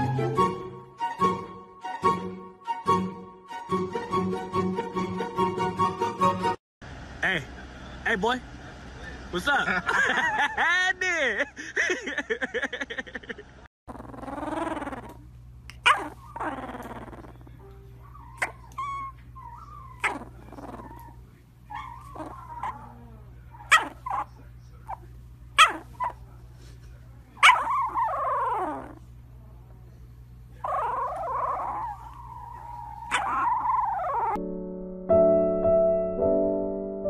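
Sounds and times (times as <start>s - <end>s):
puppy whining: 13.9s - 26.2s, 27.4s - 29.1s, 30.6s - 34.4s
puppy yipping: 14.0s - 25.0s, 25.6s - 26.2s, 27.4s - 29.0s, 30.6s - 34.4s.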